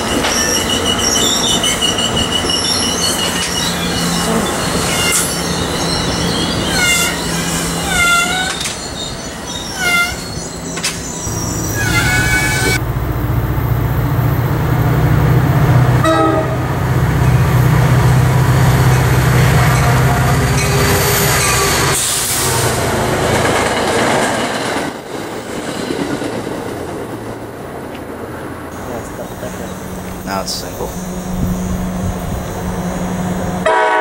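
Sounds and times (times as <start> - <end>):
high squeal: 0.0 - 12.8
locomotive engine drone: 0.0 - 24.2, 27.4 - 34.0
train rushing noise: 0.0 - 34.0.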